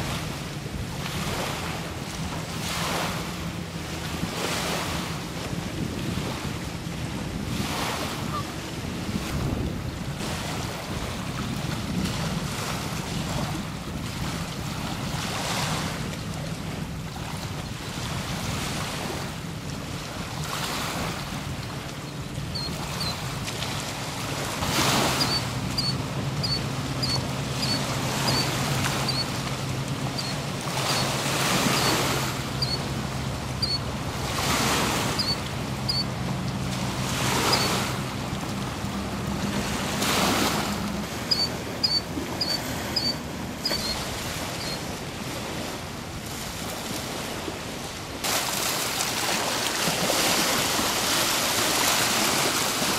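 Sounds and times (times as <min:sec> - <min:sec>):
lake waves washing onto shore: 0:00.0 - 0:52.9
wind: 0:00.0 - 0:52.9
short high bird chirps: 0:25.2 - 0:28.5, 0:41.3 - 0:44.0.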